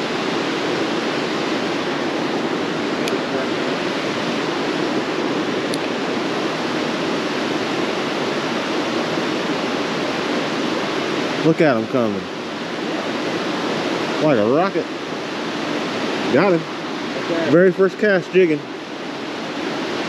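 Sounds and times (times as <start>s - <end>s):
stream rushing over cascades: 0.0s - 20.0s.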